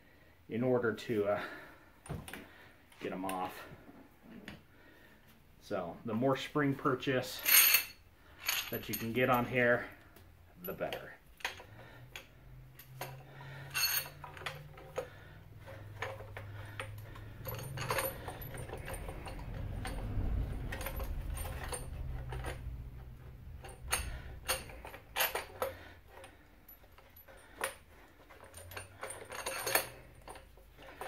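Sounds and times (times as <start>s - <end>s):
metal clinks and clicks: 10.6s - 31.0s.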